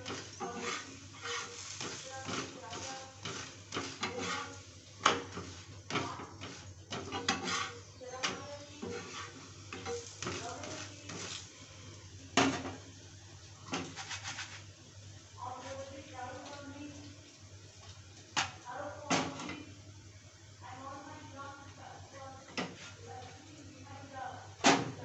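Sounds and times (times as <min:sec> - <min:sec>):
spatula clattering on stovetop: 0:00.0 - 0:11.4
metal spatula scraping griddle: 0:00.0 - 0:11.5, 0:13.7 - 0:14.6
food sizzling: 0:00.0 - 0:25.0.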